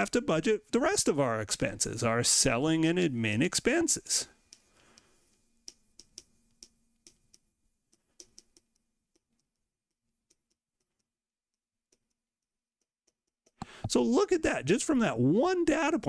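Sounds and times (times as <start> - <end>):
stylus clicking on tablet: 3.8 - 13.9.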